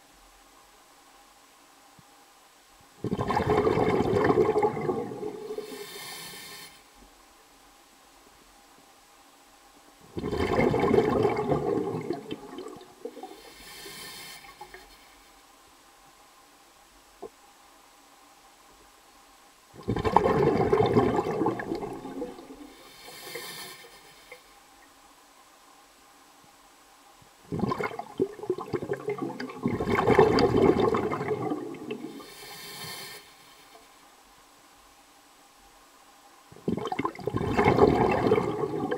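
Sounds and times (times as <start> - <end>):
faint hiss: 0.0 - 38.9
gurgling rushing water: 3.0 - 6.0, 10.0 - 13.6, 19.8 - 23.3, 27.5 - 32.4, 36.5 - 38.9
short hiss: 5.6 - 6.9, 13.4 - 15.1, 32.2 - 33.9.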